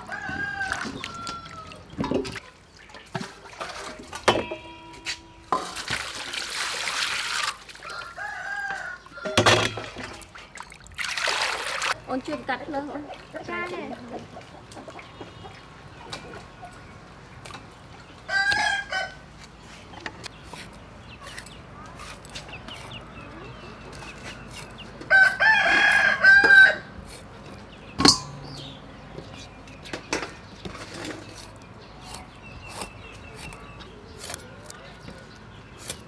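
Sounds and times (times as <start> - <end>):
rooster crowing: 0.0 - 1.8, 7.8 - 9.4, 25.1 - 26.9.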